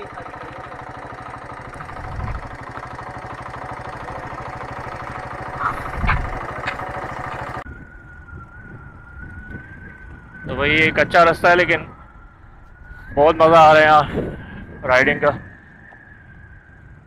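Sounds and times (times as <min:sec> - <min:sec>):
motorcycle engine idling: 0:00.0 - 0:12.9.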